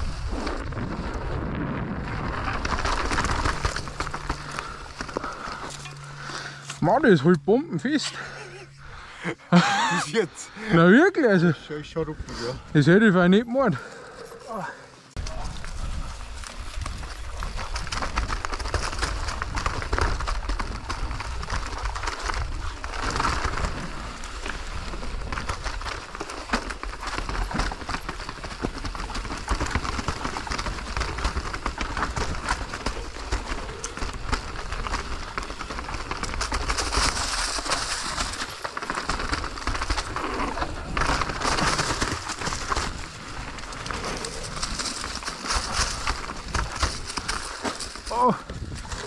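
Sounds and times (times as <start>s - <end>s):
bike rattling over rocks: 0.0s - 7.2s, 12.8s - 49.0s
tyres on dirt: 0.0s - 49.0s
wind buffeting microphone: 15.2s - 22.8s.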